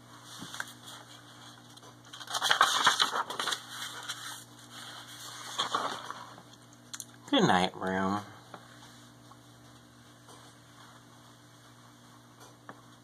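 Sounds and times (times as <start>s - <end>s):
paper pages rustling: 0.2s - 6.6s.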